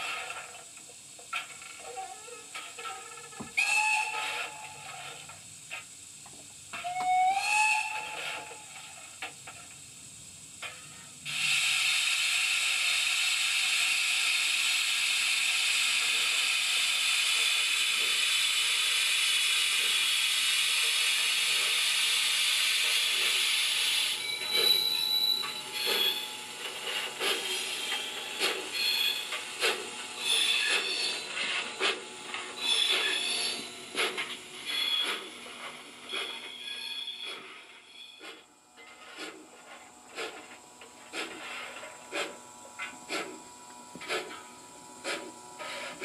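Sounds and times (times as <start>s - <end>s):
steam hiss: 2.4s - 43.4s, 44.0s - 46.0s
steam whistle toots: 3.6s - 5.2s, 6.8s - 8.9s.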